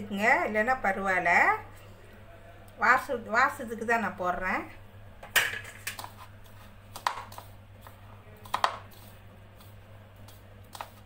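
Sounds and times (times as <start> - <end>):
low steady hum: 0.0 - 11.0
mixture rustling by hand: 5.6 - 11.0.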